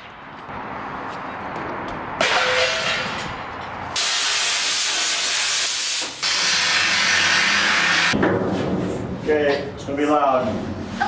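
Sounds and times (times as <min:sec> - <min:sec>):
cutting torch hissing: 0:04.0 - 0:08.2.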